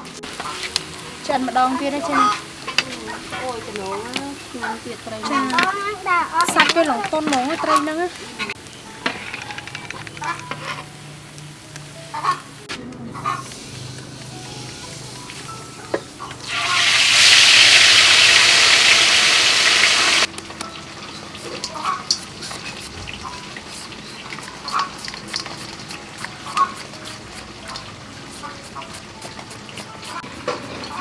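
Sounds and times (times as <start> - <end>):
food sizzling in hot oil: 0.0 - 31.0
knife shaving mango into steel bowl: 21.4 - 31.0.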